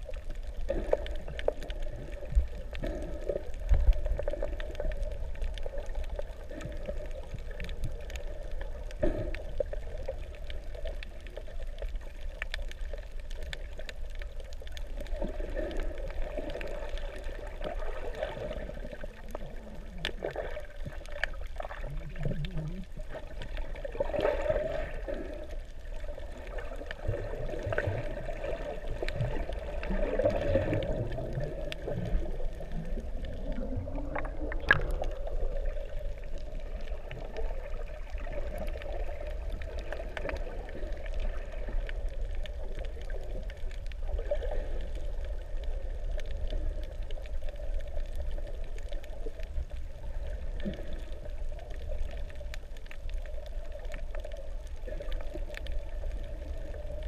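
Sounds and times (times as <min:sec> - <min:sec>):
faint clicks: 0:00.0 - 0:24.2, 0:24.8 - 0:57.0
muffled underwater wash: 0:00.0 - 0:57.0
low rumble: 0:28.8 - 0:57.0.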